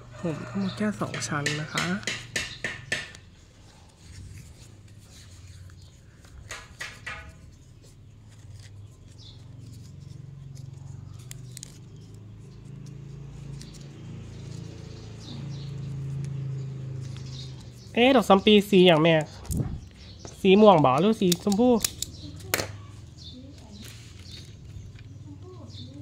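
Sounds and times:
leaves rustling and crinkling: 3.4 - 19.6, 20.4 - 26.0
crisp crackles: 7.7 - 15.2, 21.8 - 26.0.

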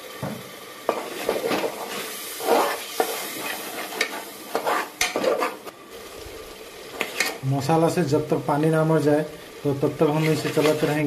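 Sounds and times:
frying sizzle: 0.0 - 11.0
metal spatula scraping pot: 0.9 - 5.7, 7.0 - 7.4, 10.0 - 11.0.

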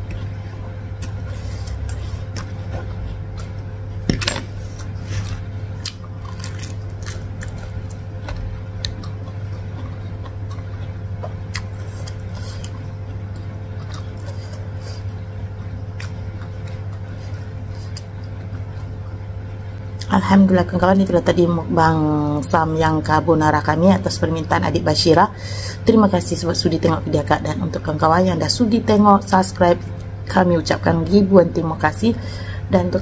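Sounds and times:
wet chewing of noodles: 0.0 - 4.0, 4.6 - 19.1
steady low hum: 0.0 - 33.0.

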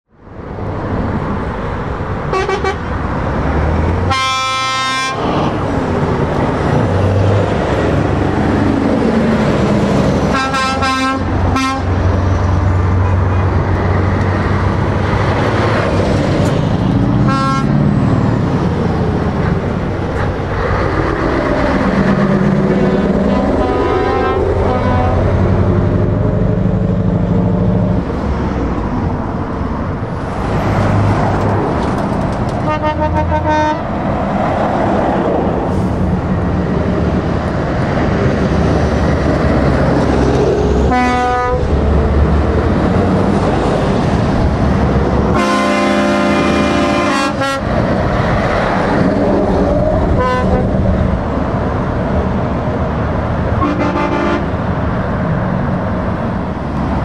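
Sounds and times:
diesel trucks driving past: 0.1 - 57.0
truck air horns blasting: 2.3 - 2.9, 4.1 - 5.2, 10.3 - 12.0, 17.2 - 17.8, 23.3 - 25.4, 32.6 - 33.9, 40.9 - 41.7, 45.3 - 47.7, 50.1 - 50.8, 53.6 - 54.5.

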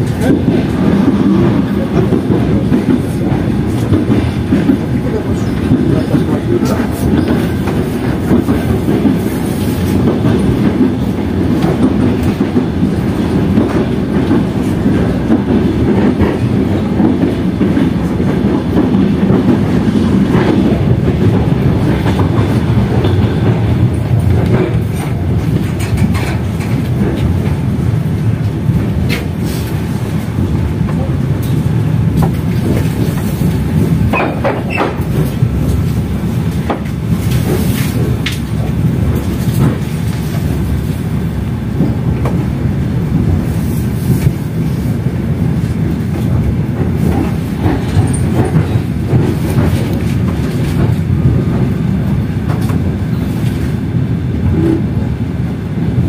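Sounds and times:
train rumbling on rails: 0.0 - 56.0.

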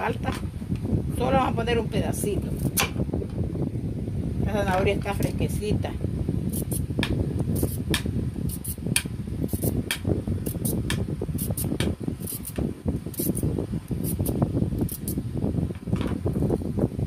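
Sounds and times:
peeler scraping carrot: 6.5 - 6.9, 7.5 - 15.2.

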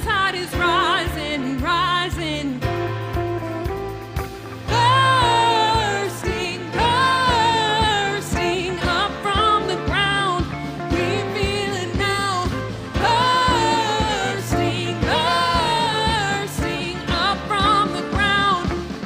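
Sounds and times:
acoustic guitars: 0.0 - 19.0
drum kit beat: 0.0 - 19.0
keyboard: 0.0 - 19.0
women singing: 4.7 - 19.0.

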